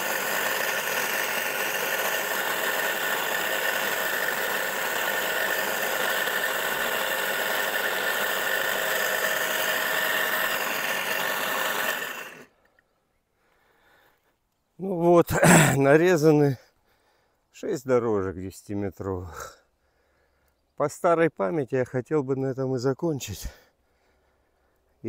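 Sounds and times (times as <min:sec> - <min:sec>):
electric motor whining under load: 0:00.0 - 0:12.5.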